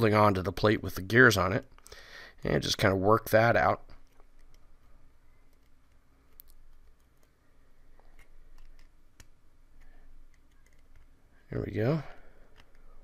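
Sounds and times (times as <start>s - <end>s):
faint pliers clicking: 12.4s - 13.0s.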